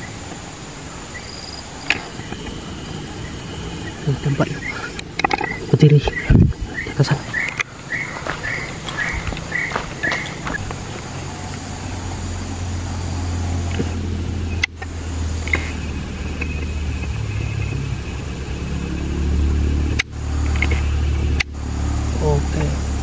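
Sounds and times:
low engine hum: 0.0 - 23.0
sharp clicks: 1.8 - 2.5, 7.4 - 7.7.

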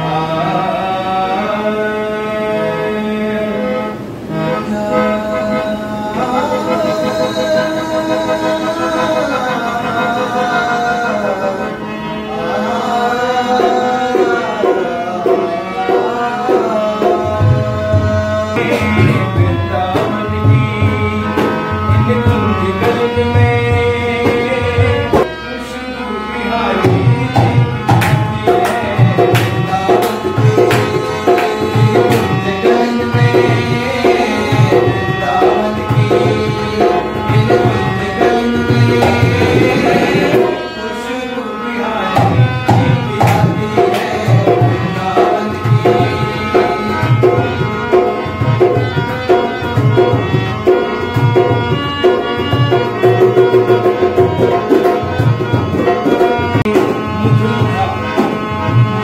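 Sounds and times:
harmonium melody: 0.0 - 59.0
man singing: 0.0 - 59.0
hand drum rhythm: 17.2 - 25.3, 26.9 - 40.6, 42.2 - 59.0.

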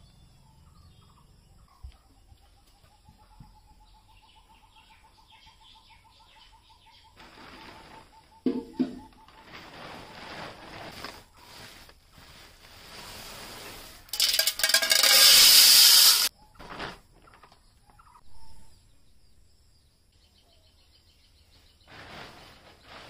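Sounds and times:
sack rustling: 9.4 - 14.2, 21.9 - 23.0
corn kernels pouring into metal pot: 13.1 - 16.3.

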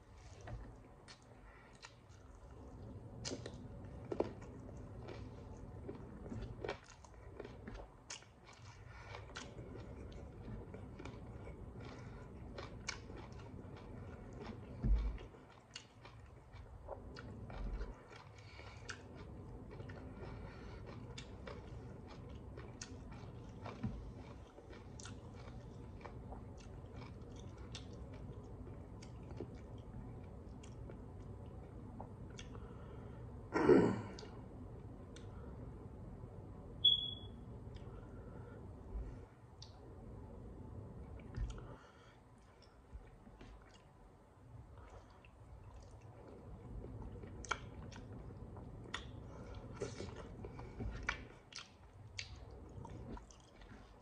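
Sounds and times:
person chewing and lip-smacking: 0.3 - 32.7, 41.1 - 41.8, 42.4 - 44.0, 44.8 - 54.0
short high squeak: 36.8 - 37.3.

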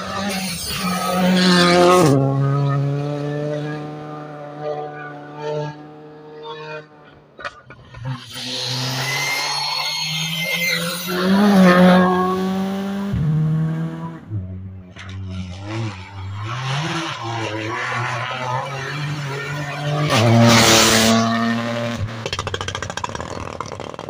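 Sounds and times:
rally car engine through gear changes: 0.0 - 24.0
rally car passing at full throttle: 0.0 - 24.0.

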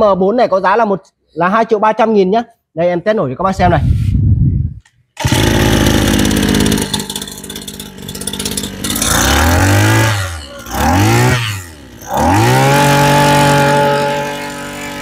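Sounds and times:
brush cutter engine revving: 5.2 - 15.0.

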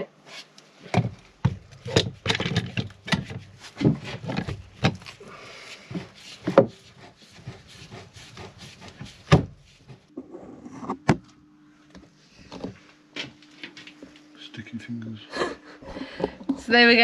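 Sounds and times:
clamp knocking and clicking: 1.0 - 3.4
metal rubbing on wood: 5.5 - 11.0.

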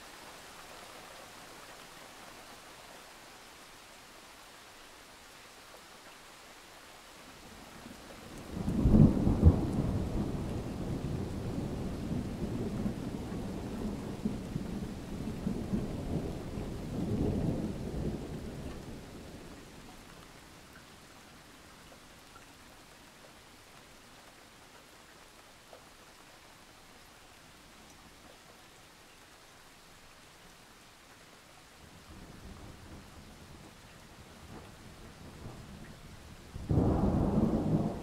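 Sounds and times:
steady rain: 0.0 - 38.0
rolling thunder: 36.6 - 38.0.

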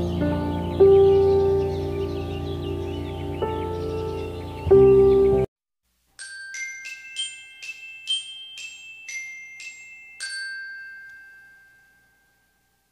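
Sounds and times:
background music: 0.0 - 5.5
bell-like chiming jingle: 6.2 - 12.9.

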